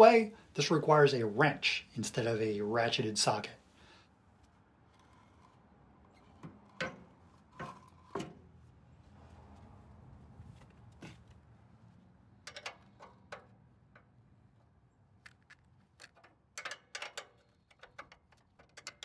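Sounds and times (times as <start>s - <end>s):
wrench clicking against bolts: 12.5s - 14.1s, 15.3s - 19.0s.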